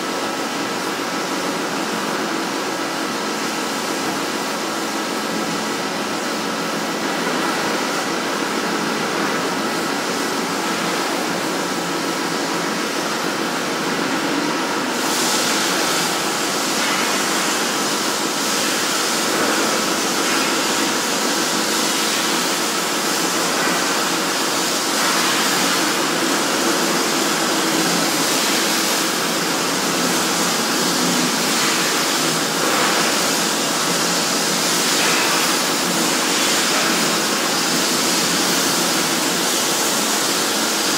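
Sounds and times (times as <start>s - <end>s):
plasma arc hissing: 24.9s - 40.6s.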